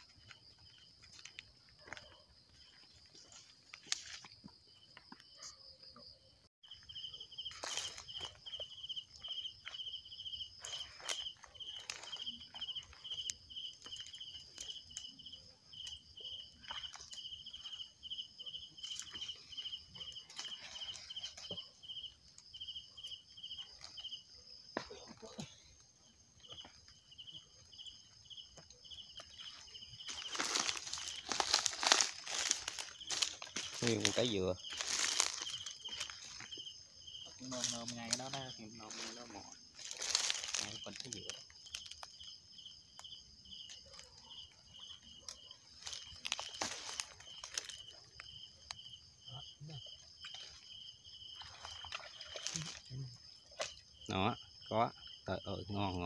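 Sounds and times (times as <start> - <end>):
footsteps through wet grass: 0.0 - 5.1, 6.6 - 15.0, 28.4 - 42.2, 45.4 - 48.5, 50.2 - 52.9
rhythmic insect chirp: 0.0 - 56.0
insects high trill: 27.2 - 55.9.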